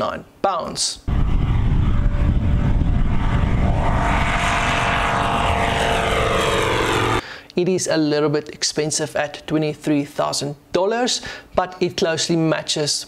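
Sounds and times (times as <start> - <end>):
light aircraft flying past: 1.1 - 7.2.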